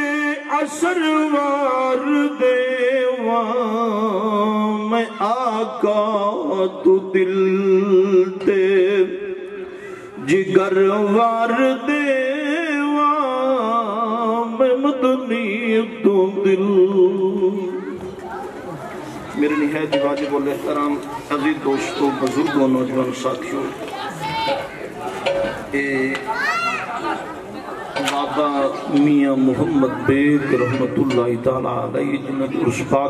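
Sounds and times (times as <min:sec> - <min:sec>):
man chanting: 0:00.0 - 0:17.9, 0:28.2 - 0:33.0.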